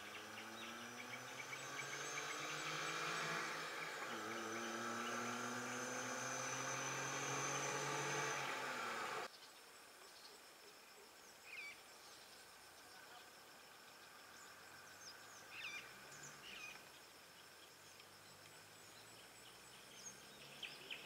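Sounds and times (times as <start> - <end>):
vehicles driving past: 0.0 - 9.3
bird chirp: 0.0 - 21.0
insects chorus: 0.0 - 21.0.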